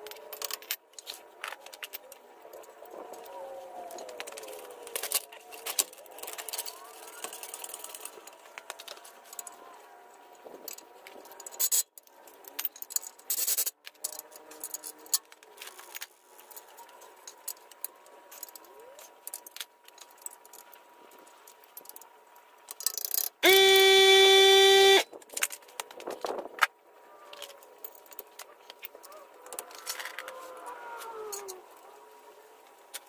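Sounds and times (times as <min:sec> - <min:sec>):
cordless power tool running: 0:23.4 - 0:25.0.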